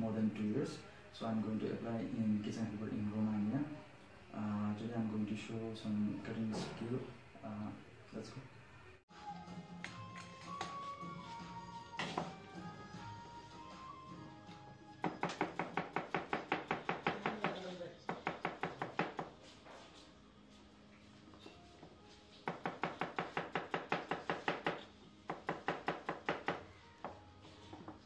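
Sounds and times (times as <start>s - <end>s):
knife chopping on cutting board: 15.0s - 19.4s, 22.4s - 27.2s.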